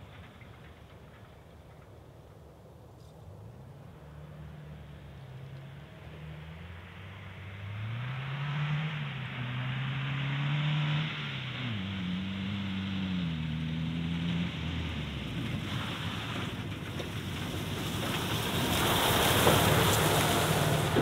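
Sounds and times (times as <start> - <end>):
pickup truck engine revving: 18.0 - 21.0.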